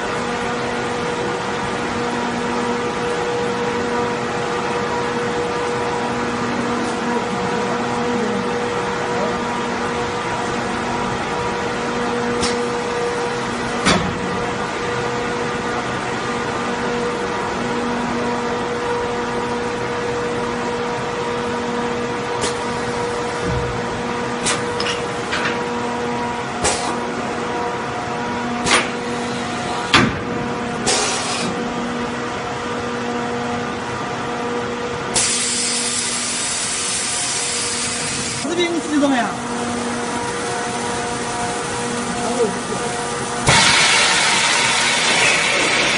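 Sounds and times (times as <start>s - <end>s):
machine electrical hum: 0.0s - 45.9s
compressed air hissing: 30.8s - 31.6s, 35.2s - 38.4s.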